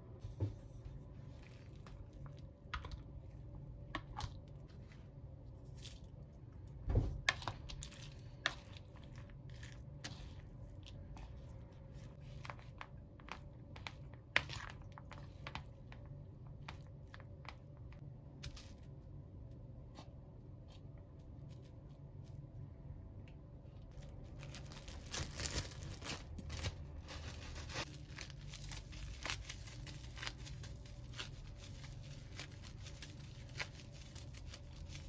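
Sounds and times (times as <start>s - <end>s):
low steady hum: 0.0s - 35.0s
plastic wrap handled: 23.6s - 35.0s.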